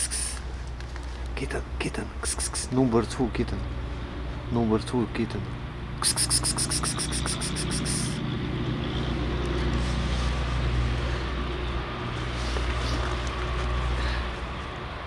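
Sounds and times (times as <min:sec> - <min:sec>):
vehicle engine rumbling: 0:00.0 - 0:15.0
high-pitched trill: 0:06.0 - 0:08.2.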